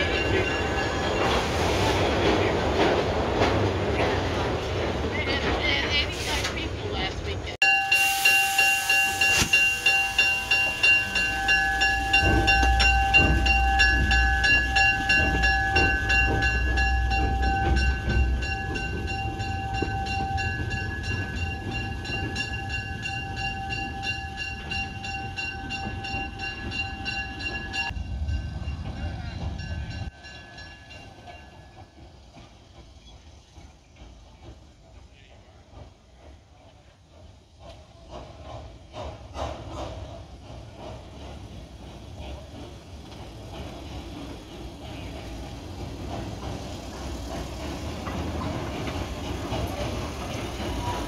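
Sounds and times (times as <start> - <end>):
steam locomotive chuffing: 0.0 - 51.0
high steam tone: 7.6 - 33.8.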